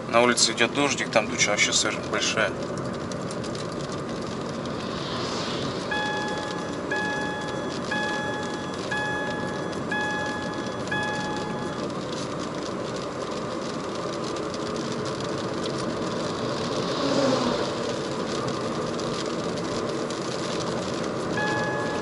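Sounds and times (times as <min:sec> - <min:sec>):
car engine running: 0:00.0 - 0:22.0
tyre and road noise on wet road: 0:00.0 - 0:22.0
truck passing: 0:03.3 - 0:11.9, 0:16.4 - 0:18.6.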